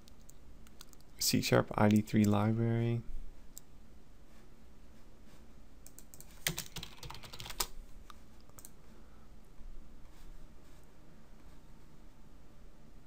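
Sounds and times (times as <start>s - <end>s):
keyboard typing: 0.0s - 1.1s, 5.8s - 7.7s.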